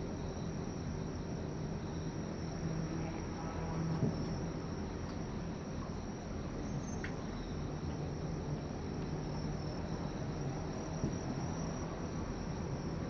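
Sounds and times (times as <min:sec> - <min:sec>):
crickets chirring: 0:00.0 - 0:13.0
faint thump: 0:04.0 - 0:04.2, 0:11.0 - 0:11.4.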